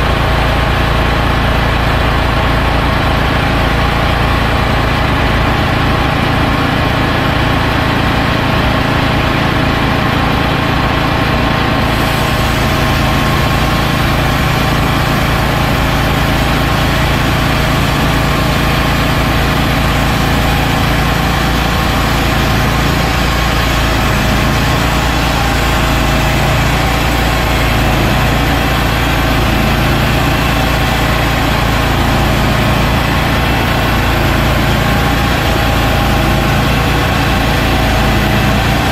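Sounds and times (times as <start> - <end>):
bandsaw sawmill engine running: 0.0 - 38.9
blade hiss sawing log: 11.9 - 38.9.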